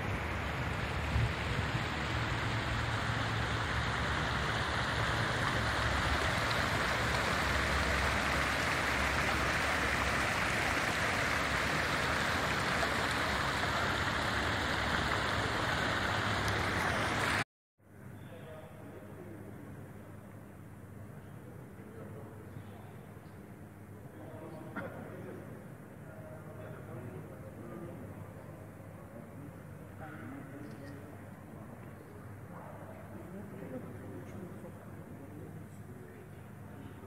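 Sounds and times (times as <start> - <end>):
fountain jets splashing into pool: 0.0 - 17.4.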